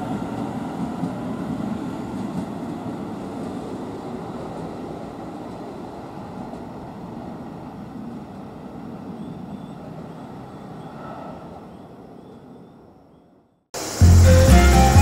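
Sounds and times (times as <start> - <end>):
electric train pulling away: 13.8 - 15.0.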